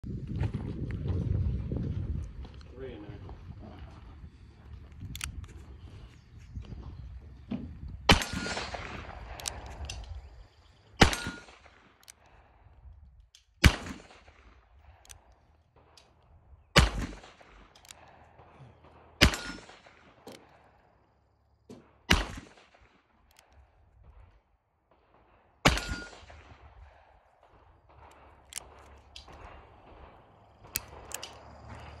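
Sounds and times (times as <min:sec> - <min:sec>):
light clicks: 0:04.9 - 0:05.7, 0:27.9 - 0:32.0
revolver gunshots echoing: 0:08.1 - 0:09.8, 0:11.0 - 0:12.2, 0:13.6 - 0:16.0, 0:16.7 - 0:20.8, 0:21.8 - 0:23.5, 0:25.1 - 0:32.0.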